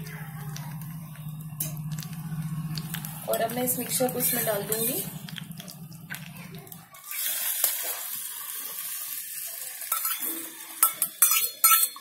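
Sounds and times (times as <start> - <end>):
mixture sizzling in hot ghee: 0.4 - 12.0
spoon clinking against container: 10.8 - 12.0.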